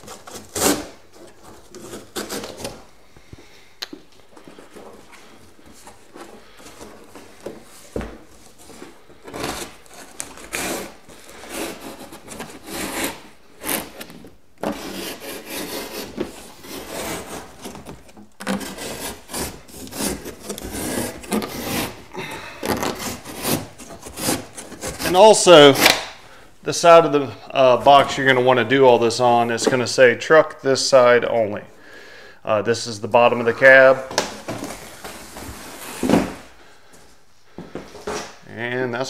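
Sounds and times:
cardboard rasping and scraping: 0.0 - 2.8, 4.4 - 26.0, 34.4 - 36.5.

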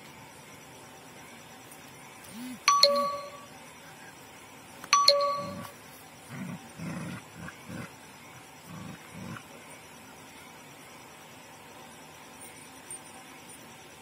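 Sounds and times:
ringing bell dings: 2.6 - 3.5, 4.9 - 5.8
puppies growling: 6.2 - 9.6.

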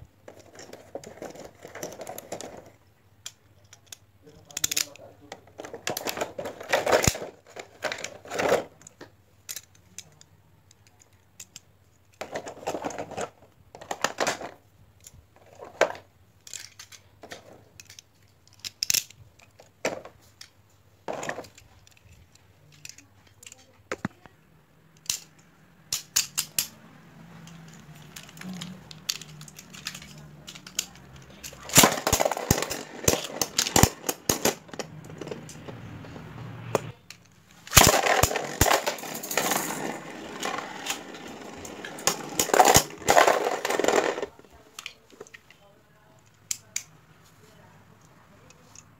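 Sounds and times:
plastic parts clicking: 0.3 - 24.3, 25.0 - 35.8, 37.1 - 45.6
tops clattering in plastic stadium: 27.5 - 36.2.

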